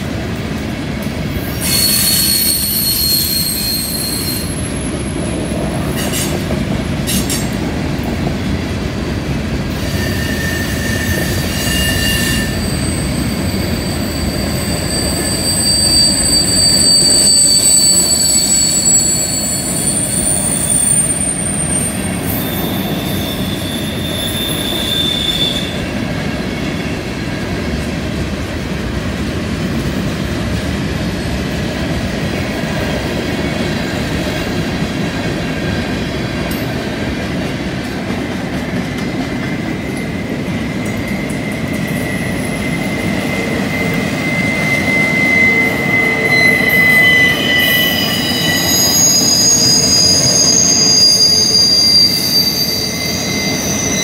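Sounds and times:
train wheels rumbling on rails: 0.0 - 54.0
wheel flange squeal: 1.4 - 5.2, 9.7 - 25.9, 40.9 - 54.0.

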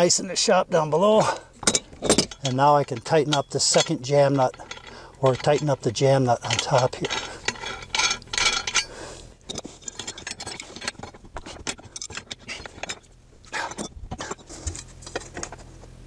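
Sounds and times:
steel tools clicking and scraping: 1.3 - 15.7.

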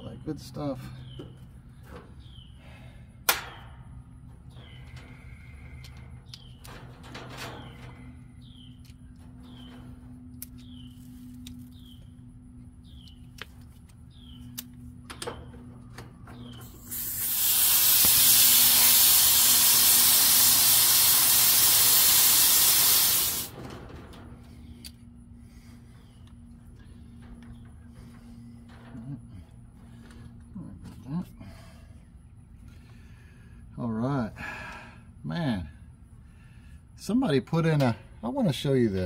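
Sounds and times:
refrigerant hissing from hose connection: 16.6 - 23.7.

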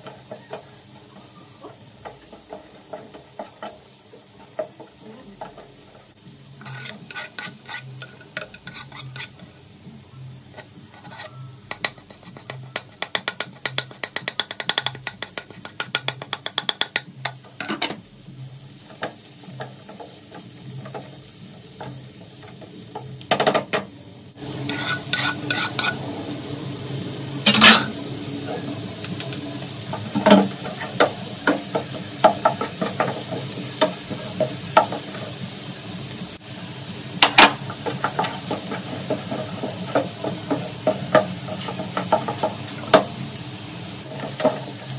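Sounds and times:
vegetables sizzling: 0.0 - 44.9
spatula scraping frying pan: 6.6 - 9.4, 10.5 - 15.6, 24.4 - 26.0, 27.4 - 28.0, 37.4 - 43.2.

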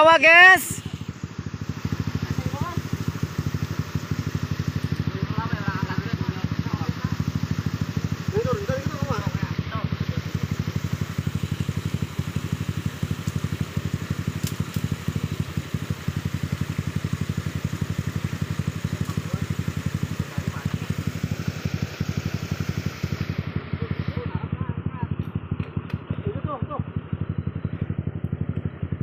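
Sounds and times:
dirt bike engine idling: 0.0 - 29.0.

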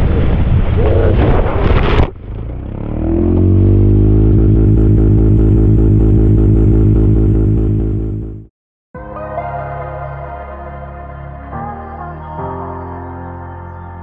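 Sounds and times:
wind noise on microphone: 0.0 - 2.2
low droning music chord: 4.0 - 13.6.

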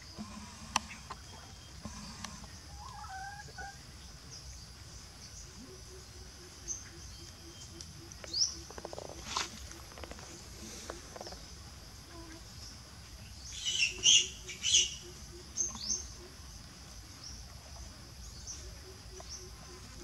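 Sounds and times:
soft clucks: 0.3 - 3.8
domestic fowl calling: 1.8 - 3.8, 5.6 - 11.4, 13.6 - 16.4
high insect drone: 3.6 - 20.0.

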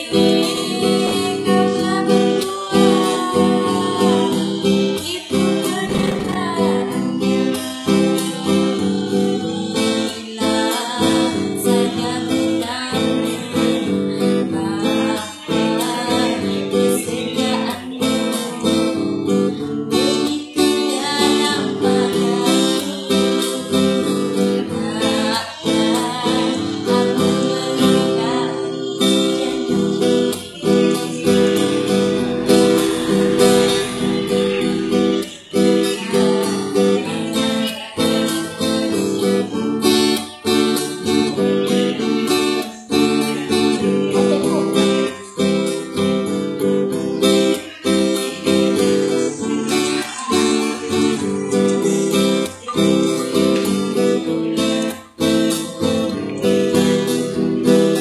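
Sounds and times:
strummed acoustic guitar: 0.0 - 58.0
woman singing: 0.0 - 58.0.

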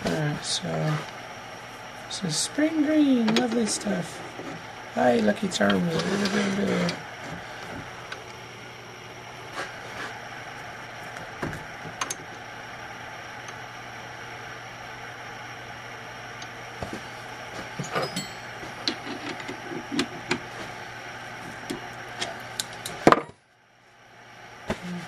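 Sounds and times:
workshop hum: 0.0 - 25.0
clicks and knocks of tools: 17.8 - 20.4, 21.6 - 23.4.

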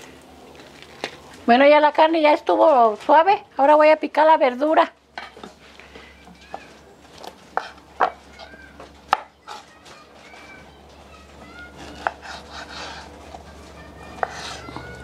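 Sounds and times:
knife chopping on wooden board: 7.6 - 8.2, 11.8 - 13.1, 14.1 - 14.8.

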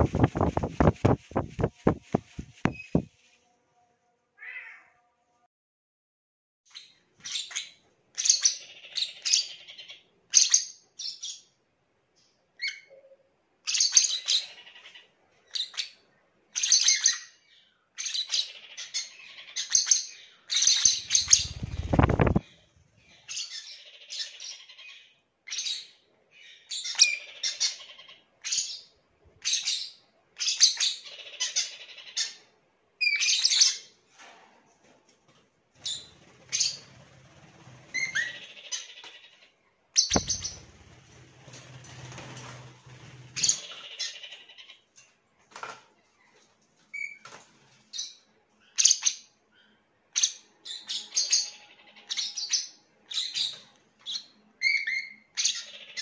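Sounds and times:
parrots chirping: 0.0 - 3.1, 18.5 - 22.4, 40.0 - 40.7.

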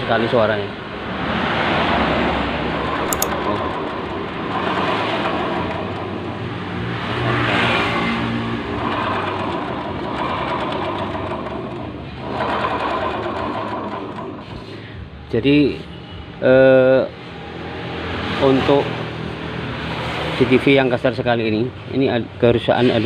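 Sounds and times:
rough scooter engine running: 2.7 - 7.3, 8.3 - 14.8.

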